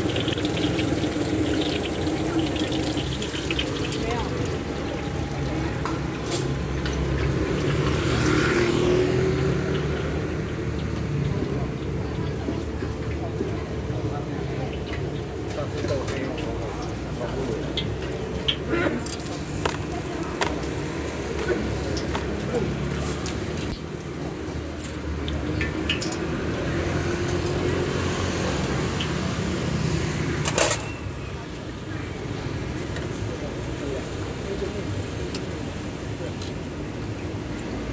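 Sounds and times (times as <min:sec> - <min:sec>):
vehicle engine passing by: 0:00.0 - 0:13.8, 0:20.9 - 0:30.6
oil bubbling and sizzling in fryer: 0:00.0 - 0:37.9
traffic rumble: 0:00.0 - 0:37.9.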